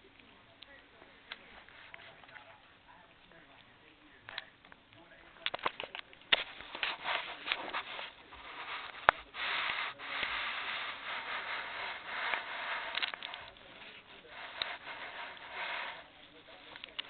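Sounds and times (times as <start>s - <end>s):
fur rubbing on microphone: 6.3s - 17.0s.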